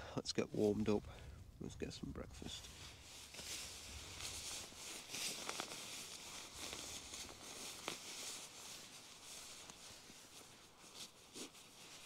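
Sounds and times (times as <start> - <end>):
rustling and handling noises: 2.4 - 12.0.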